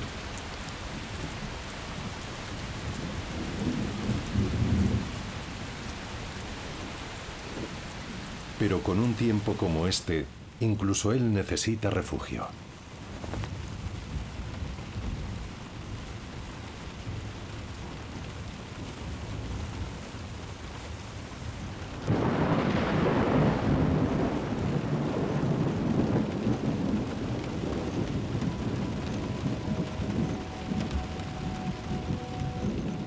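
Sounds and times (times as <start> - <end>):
steady rain: 0.0 - 33.0
loud rolling thunderclap: 2.8 - 5.4, 22.0 - 33.0.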